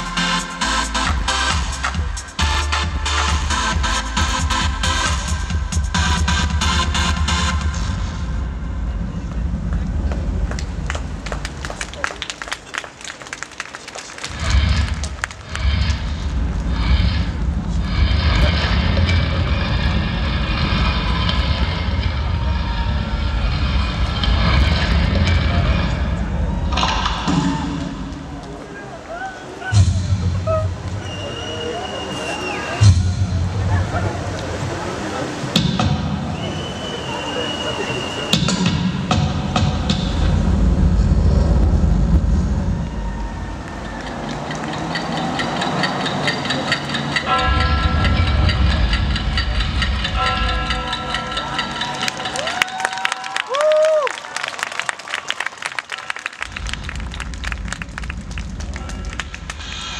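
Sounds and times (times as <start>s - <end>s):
deep machine rumble: 4.6s - 12.1s, 14.3s - 28.7s, 38.6s - 52.6s, 56.5s - 59.9s
crumbling stone rumble over loudspeakers: 56.4s - 59.7s.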